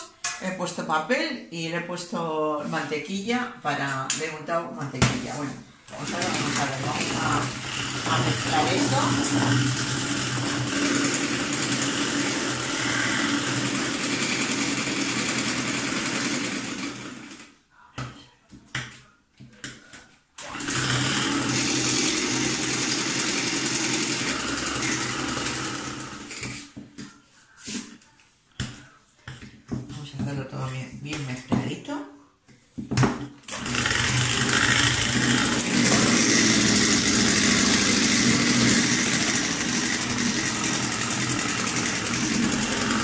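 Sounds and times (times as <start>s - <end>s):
electric hand mixer whisking: 5.9s - 17.4s, 20.4s - 26.7s, 33.5s - 43.0s.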